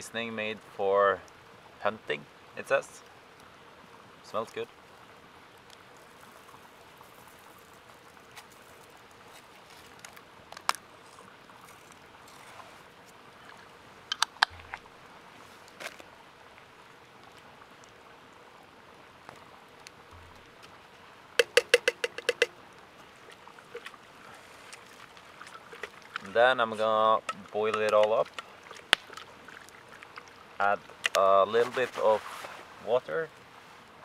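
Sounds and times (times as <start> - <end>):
campfire crackling: 0.0 - 34.0
spoon tapping metal pot: 21.4 - 22.6.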